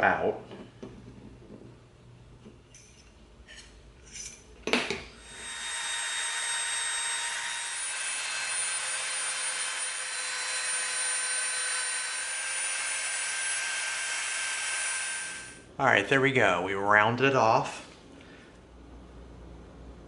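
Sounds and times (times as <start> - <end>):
rotary tool whining: 5.2 - 15.6.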